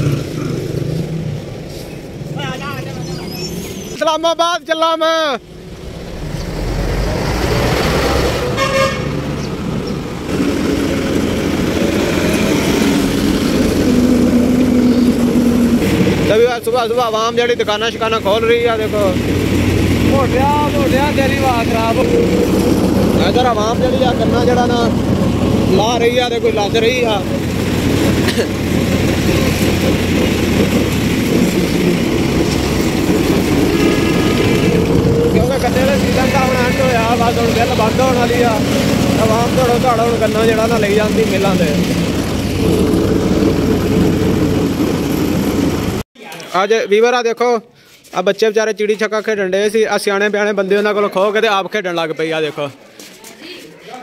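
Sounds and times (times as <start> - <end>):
road noise: 0.0 - 46.1
tractor engine running: 5.4 - 46.0
vehicle horn toot: 8.5 - 9.2.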